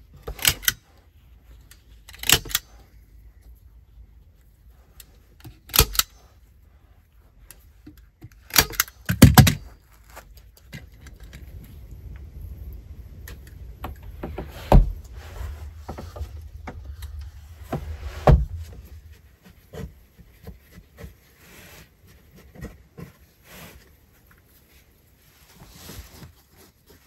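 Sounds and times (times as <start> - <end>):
low rumble: 10.8 - 20.2
wooden door thumping shut: 17.8 - 18.6.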